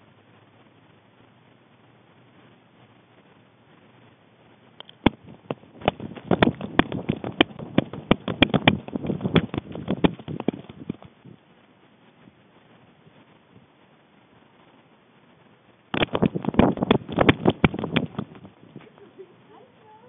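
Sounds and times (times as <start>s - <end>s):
collar camera clicks and thumps: 4.8s - 11.2s, 15.9s - 18.5s.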